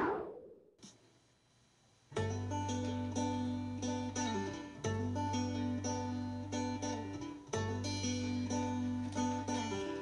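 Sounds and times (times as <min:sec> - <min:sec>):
plucked acoustic guitar music: 0:02.2 - 0:10.0.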